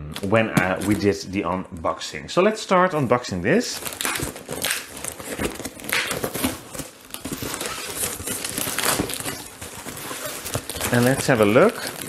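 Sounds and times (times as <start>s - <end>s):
cardboard crackling and scraping: 0.2s - 1.5s, 3.6s - 12.0s
packing tape peeling off cardboard: 3.8s - 12.0s.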